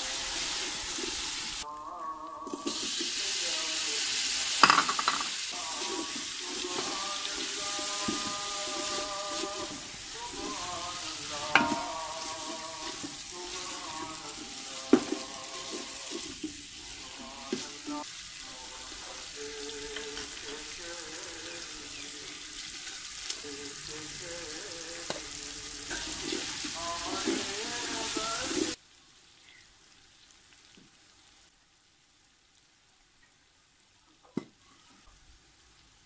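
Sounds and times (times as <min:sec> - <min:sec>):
vegetables sizzling in oil: 0:00.0 - 0:34.0
spatula stirring: 0:05.7 - 0:18.0.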